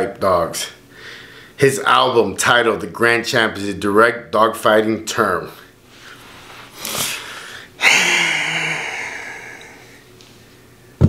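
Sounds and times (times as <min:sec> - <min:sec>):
man snorting breath: 0:06.0 - 0:10.0
man laughing breathily: 0:07.8 - 0:09.9.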